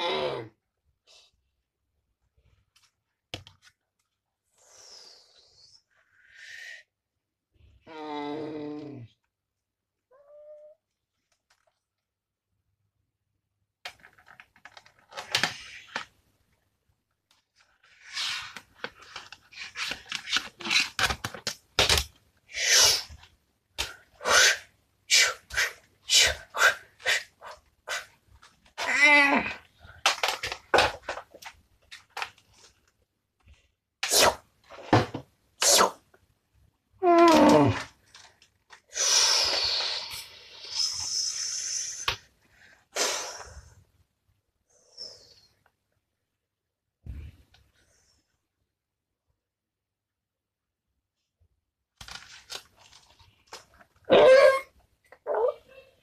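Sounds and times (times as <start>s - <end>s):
person making breathy hisses: 4.5s - 6.9s, 22.5s - 23.2s, 23.8s - 28.2s, 34.0s - 34.4s, 35.6s - 36.0s, 38.9s - 42.3s, 42.9s - 43.8s.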